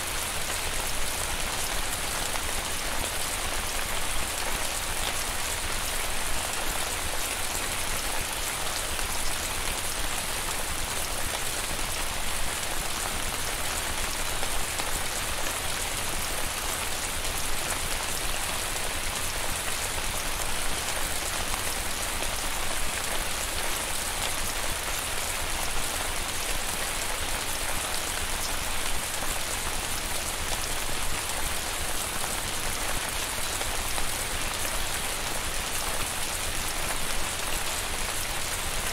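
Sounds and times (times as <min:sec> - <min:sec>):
rain falling: 0:00.0 - 0:38.9.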